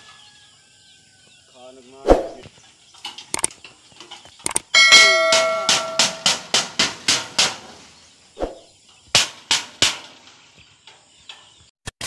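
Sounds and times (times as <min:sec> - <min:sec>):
metal sheet banging: 0:04.9 - 0:07.9, 0:09.1 - 0:10.5.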